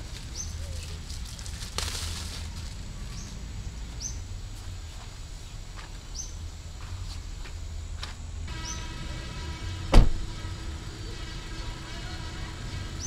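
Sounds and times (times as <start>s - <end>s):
plastic bag and fabric rustling: 0.0s - 2.9s
steady low rumble: 0.0s - 13.0s
bird chirping: 8.5s - 9.8s.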